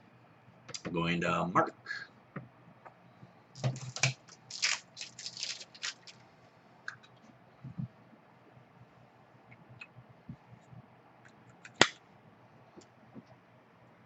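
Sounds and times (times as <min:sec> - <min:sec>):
trading cards rustling and clicking: 0:03.6 - 0:06.2.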